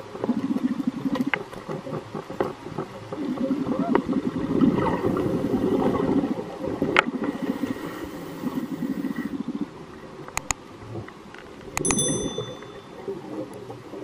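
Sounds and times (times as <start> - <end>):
underwater exhaled bubbles gurgling: 0.1 - 10.2.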